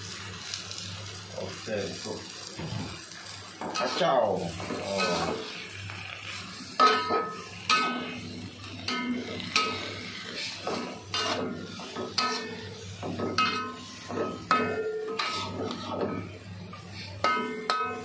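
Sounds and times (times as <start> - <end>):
metal spatula clanking on wok: 6.8 - 8.1, 8.8 - 10.0, 10.6 - 16.3, 17.2 - 18.0.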